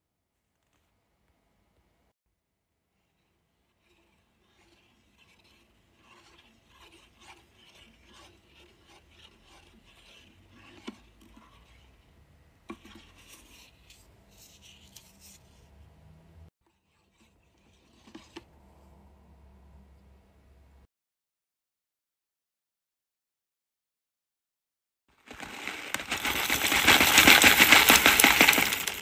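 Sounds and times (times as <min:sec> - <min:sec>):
wooden stick scraping metal pot: 0:03.0 - 0:15.7, 0:16.6 - 0:18.5, 0:25.2 - 0:29.0.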